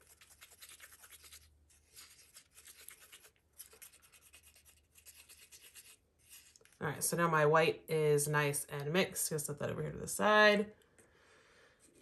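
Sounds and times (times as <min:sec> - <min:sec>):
stick scraping resin in plastic cup: 0:00.0 - 0:06.8.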